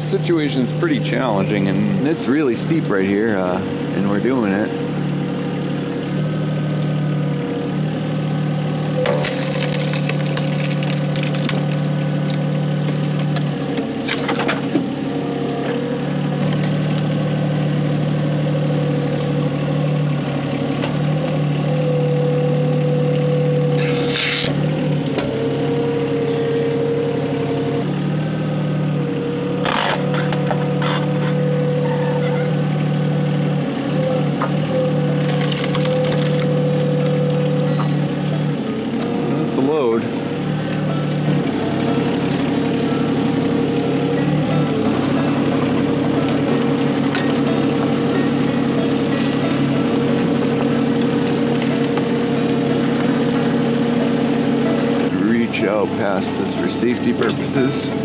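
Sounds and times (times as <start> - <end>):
excavator diesel engine running: 0.0 - 58.0
sharp wood cracks: 9.0 - 14.9, 29.6 - 31.4, 35.2 - 37.4
hydraulic whine: 11.4 - 58.0.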